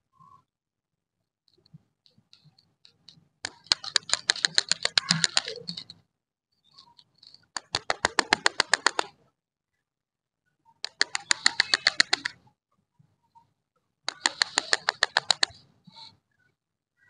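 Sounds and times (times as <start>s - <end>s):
rapid sharp clicks: 2.1s - 6.0s, 7.0s - 9.2s, 10.8s - 12.4s, 14.1s - 15.6s.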